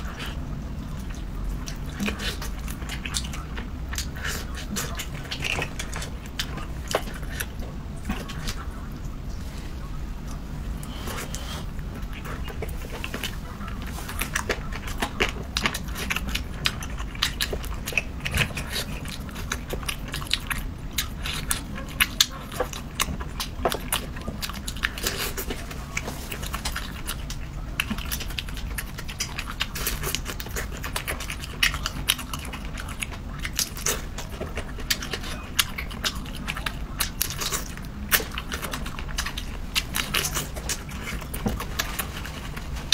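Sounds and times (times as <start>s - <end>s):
person chewing shrimp: 0.0s - 9.2s, 10.2s - 42.9s.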